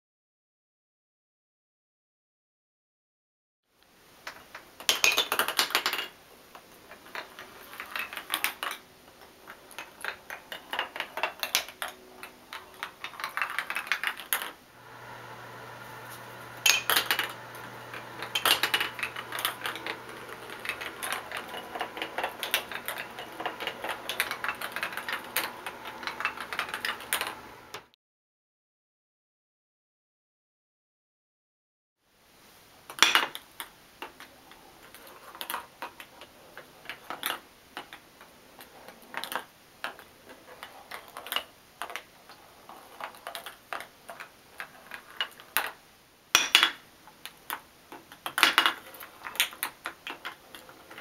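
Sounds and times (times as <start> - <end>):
balls clattering down wooden track: 9.5 - 14.6, 16.5 - 27.9, 48.0 - 51.0.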